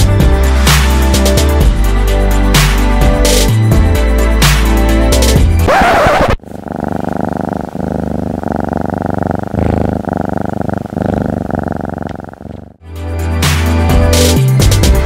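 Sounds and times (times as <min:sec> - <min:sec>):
background music: 0:00.0 - 0:05.7, 0:12.8 - 0:15.0
cat purring: 0:05.7 - 0:12.8.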